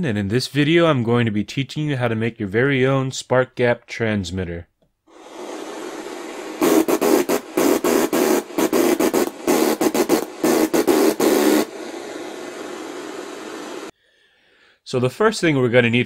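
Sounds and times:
steady hiss: 5.1s - 13.9s
electric sparks crackling: 5.3s - 13.9s.

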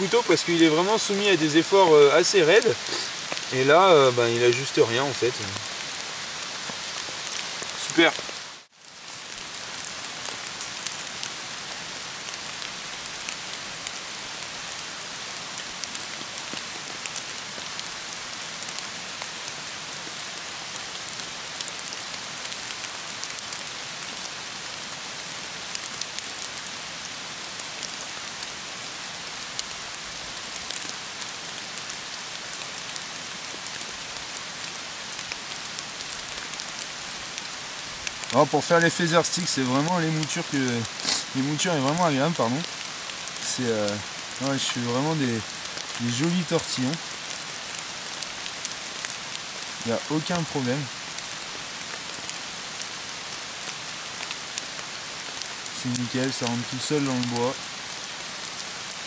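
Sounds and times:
steady rain falling: 0.0s - 59.0s
raindrop ticks: 0.1s - 14.0s, 15.6s - 24.3s, 29.4s - 52.9s, 53.6s - 57.7s.

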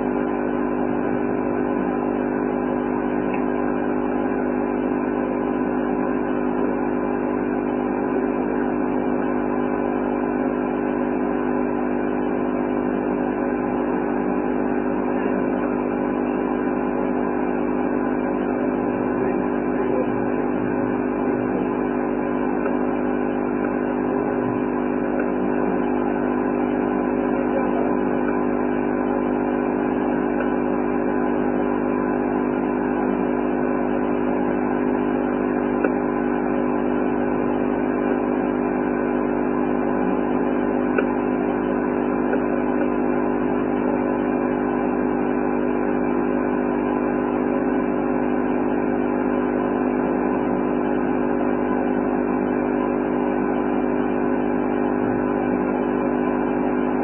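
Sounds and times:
steady mechanical hum: 0.0s - 57.0s.

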